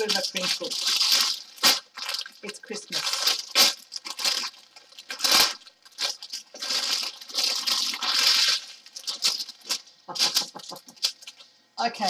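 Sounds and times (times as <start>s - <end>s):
plastic bag crinkling: 0.0s - 11.6s.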